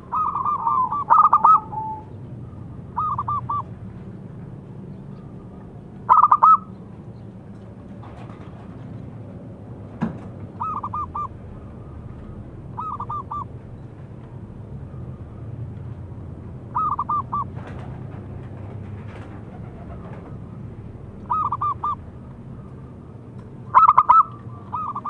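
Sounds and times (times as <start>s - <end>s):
dove cooing: 0.0s - 3.7s, 6.1s - 6.7s, 10.6s - 13.5s, 16.7s - 17.6s, 21.2s - 22.0s, 23.7s - 25.0s.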